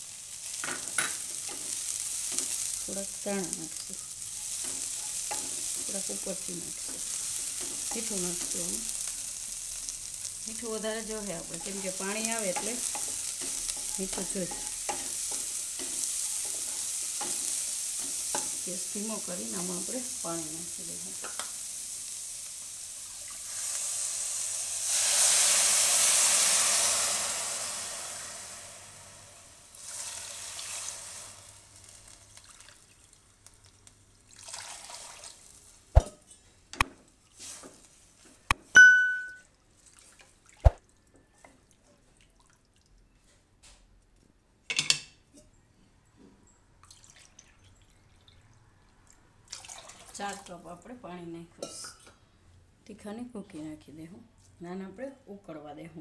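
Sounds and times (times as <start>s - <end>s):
water hissing in hot wok: 0.0s - 32.6s
ringing clink: 38.8s - 39.4s.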